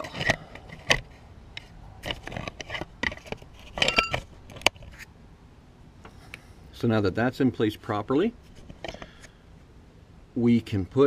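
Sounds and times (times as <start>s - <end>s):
metal tools clicking and scraping: 2.0s - 5.0s.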